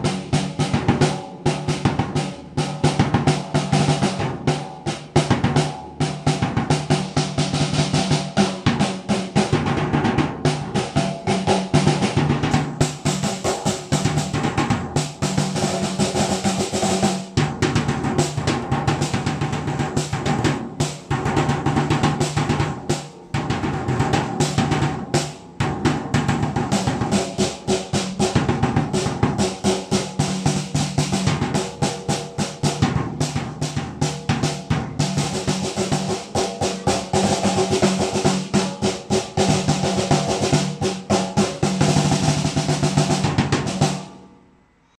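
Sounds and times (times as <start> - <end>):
snare and tom drum rolls: 0.0 - 44.2.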